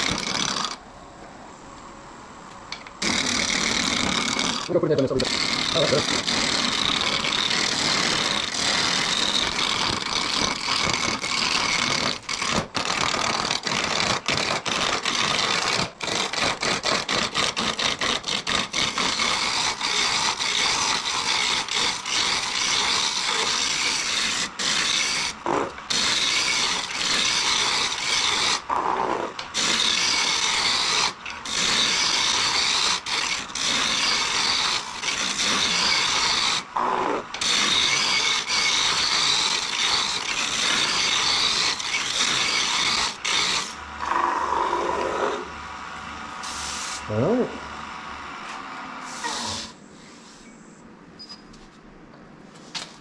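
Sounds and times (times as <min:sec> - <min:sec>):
gouge cutting wood on a lathe: 0:03.0 - 0:28.8, 0:29.4 - 0:43.9.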